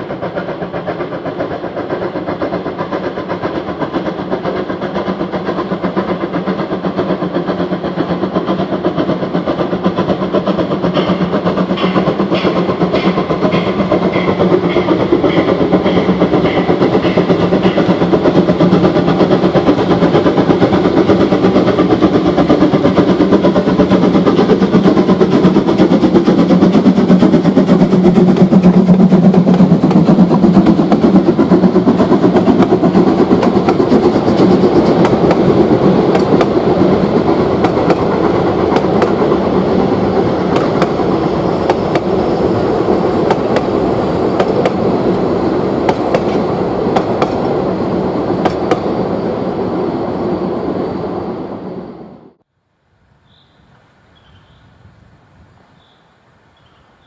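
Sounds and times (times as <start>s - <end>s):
steam blowing from cylinders: 0.0s - 52.5s
steam locomotive running past: 0.0s - 57.0s
wheels clicking over rail joints: 0.1s - 42.2s.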